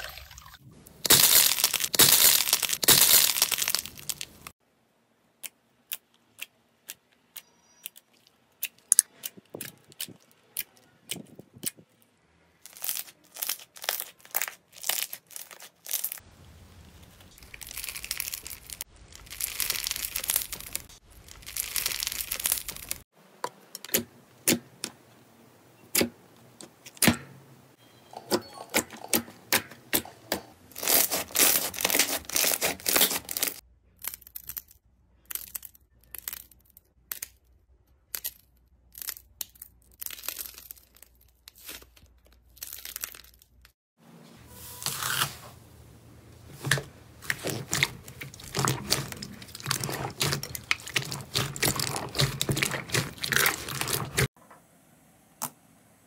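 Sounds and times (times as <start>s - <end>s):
slime crackling and tearing: 1.0s - 4.5s, 12.6s - 16.2s, 16.9s - 23.0s, 30.7s - 37.4s, 38.0s - 43.8s, 46.6s - 54.4s.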